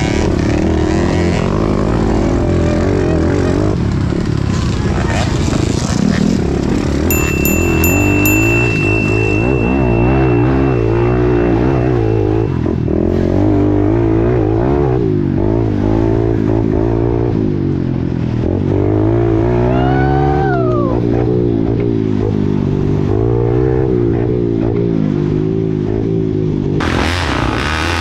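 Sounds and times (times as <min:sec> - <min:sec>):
motorcycle engine revving: 0:00.0 - 0:19.7, 0:21.1 - 0:28.0
falling pitched tone: 0:07.1 - 0:13.0.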